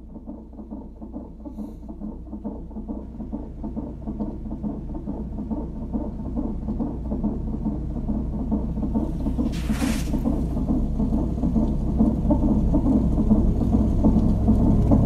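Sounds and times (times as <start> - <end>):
rapid fluttering pulse: 8.5 - 11.7.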